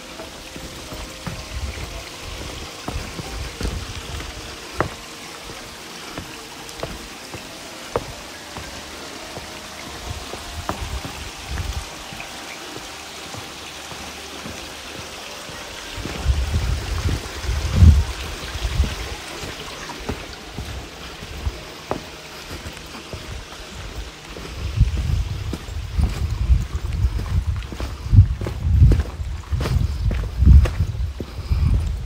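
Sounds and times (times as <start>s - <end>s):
stream rushing: 0.0s - 32.0s
low rumbling bumps: 0.5s - 7.0s, 22.5s - 32.0s.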